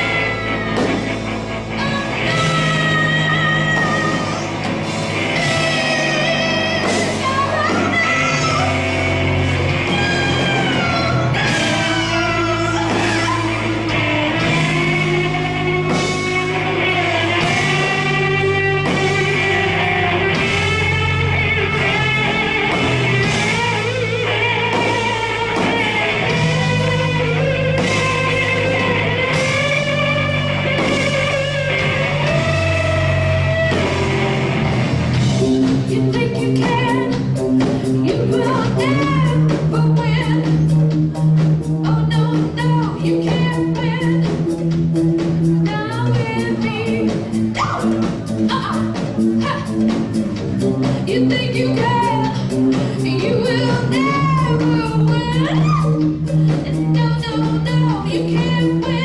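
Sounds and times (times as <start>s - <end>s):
person singing: 0.0s - 9.1s, 9.7s - 34.2s, 50.8s - 59.0s
live rock band playing: 0.0s - 59.0s.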